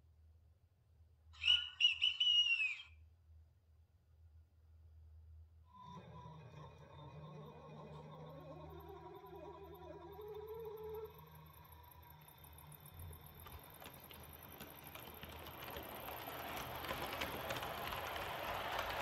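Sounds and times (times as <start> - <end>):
model train rolling on track: 5.8 - 19.0.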